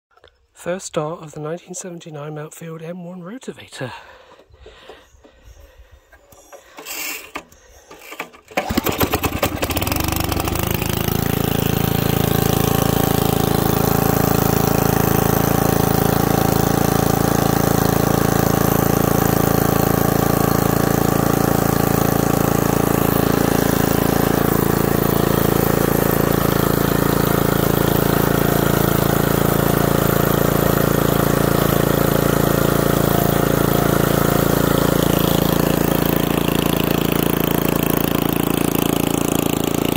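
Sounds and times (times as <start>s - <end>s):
recoil starter pull: 6.3s - 39.9s
small engine running: 6.5s - 39.9s.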